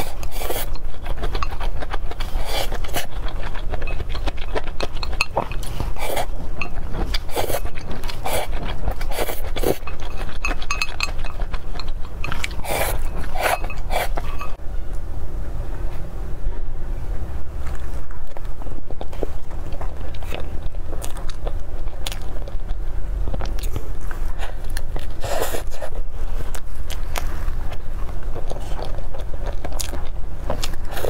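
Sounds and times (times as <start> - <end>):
chopsticks scraping glass bowl: 0.0 - 14.6
noodles slurped and chewed: 0.0 - 14.6, 18.9 - 31.0.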